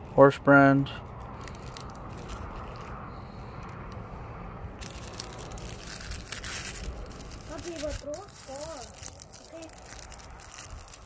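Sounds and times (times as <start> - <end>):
steady low rumble: 0.0 - 11.0
paper rustling and crinkling: 1.3 - 3.0, 4.8 - 11.0.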